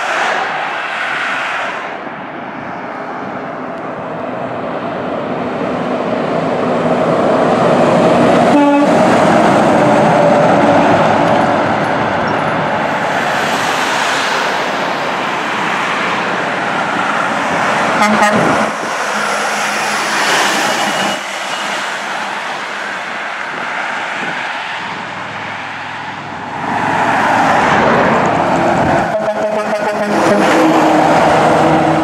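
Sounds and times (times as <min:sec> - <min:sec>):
heavy trucks passing: 0:00.0 - 0:32.0.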